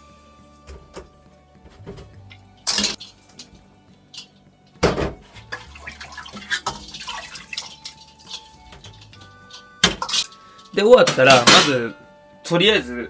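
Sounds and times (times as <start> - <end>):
water sloshing in a bowl: 5.3 - 10.3
water splashing: 5.4 - 10.3
metal bowl knocking and clinking: 6.4 - 10.4.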